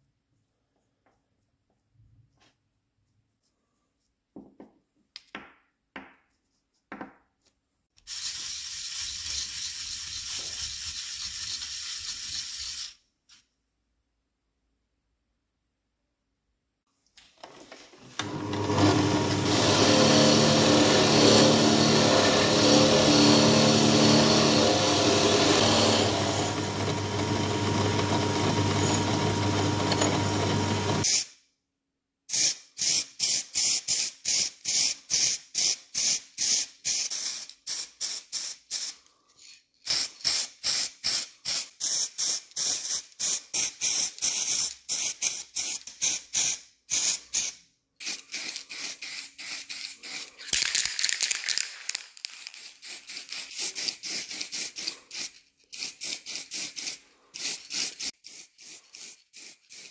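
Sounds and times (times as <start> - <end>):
hissing spray bursts: 8.0 - 13.0, 39.9 - 50.5, 52.2 - 59.9
electric motor humming: 18.2 - 31.0.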